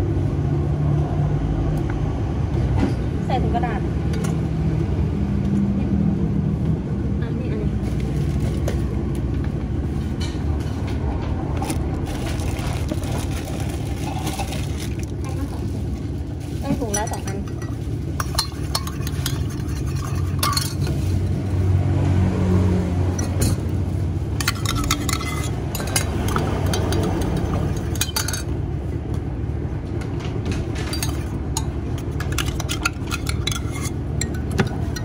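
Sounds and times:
metal spoon clinking in glass jug: 0:16.8 - 0:21.3, 0:23.1 - 0:23.7, 0:24.4 - 0:28.5, 0:30.9 - 0:35.0.

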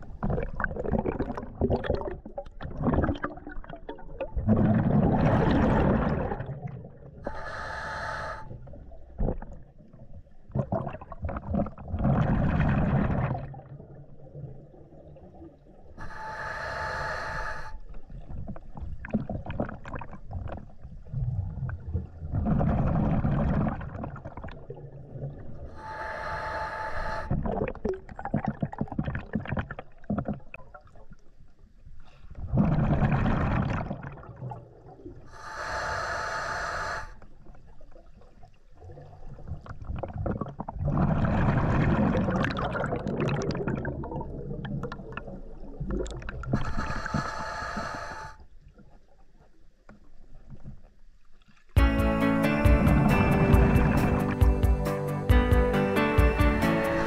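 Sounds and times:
rumble of exhaled bubbles: 0:00.0 - 0:07.3, 0:08.6 - 0:15.9, 0:18.0 - 0:25.7, 0:27.3 - 0:31.2, 0:32.4 - 0:35.3, 0:37.4 - 0:46.9
hissing regulator inhale: 0:07.2 - 0:08.6, 0:16.0 - 0:17.8, 0:25.7 - 0:27.4, 0:35.3 - 0:37.2, 0:46.5 - 0:48.4.

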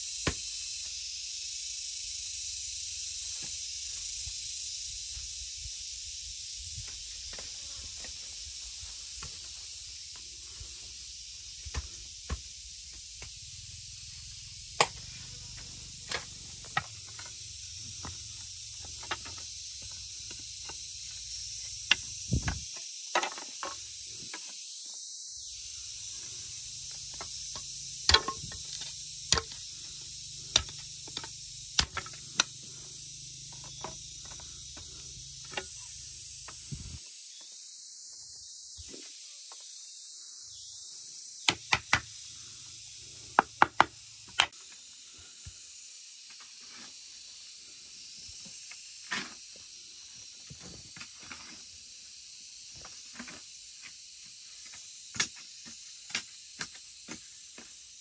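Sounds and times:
high insect chorus: 0:00.0 - 0:58.0
machete chopping bamboo: 0:00.2 - 0:00.5, 0:11.6 - 0:13.4, 0:14.7 - 0:17.4, 0:28.0 - 0:32.7
hoe striking earth: 0:14.8 - 0:18.2, 0:27.1 - 0:36.0.

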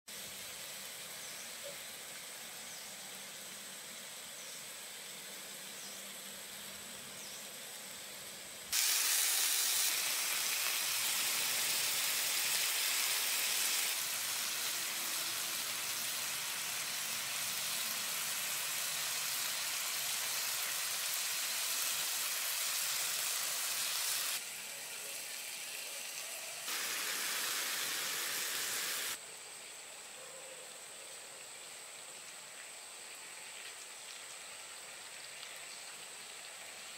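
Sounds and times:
meat sizzling in hot oil: 0:03.4 - 0:24.6, 0:25.2 - 0:29.2.

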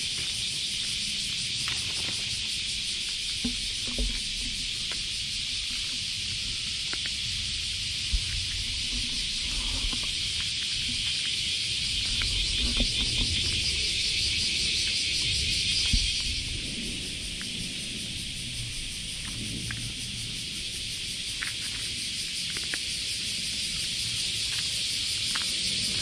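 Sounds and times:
cicadas chorus: 0:00.0 - 0:26.0
cat chewing dry kibble: 0:01.6 - 0:13.6, 0:21.3 - 0:26.0.

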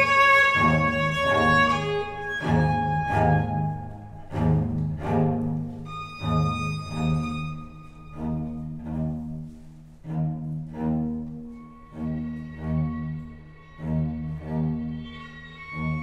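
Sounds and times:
low bowed string line: 0:00.0 - 0:16.0
violin sustained notes: 0:00.0 - 0:16.0.

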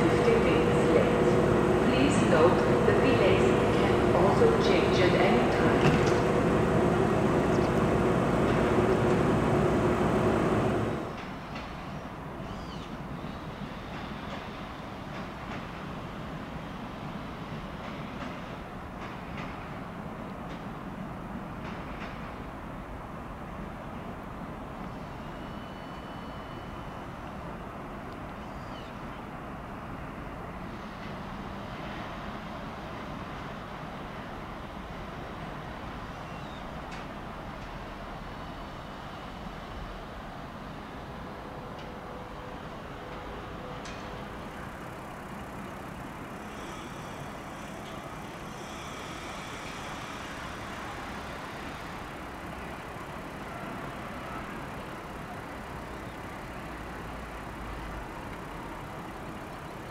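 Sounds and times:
faint high whine: 0:00.0 - 0:11.2, 0:24.8 - 0:27.1, 0:42.3 - 0:59.9
train rumbling on rails: 0:00.0 - 0:59.9.

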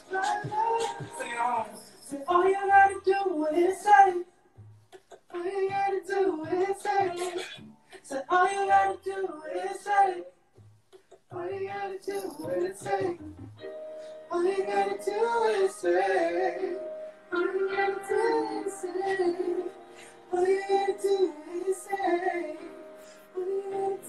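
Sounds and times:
high sung vocal: 0:14.2 - 0:24.0.

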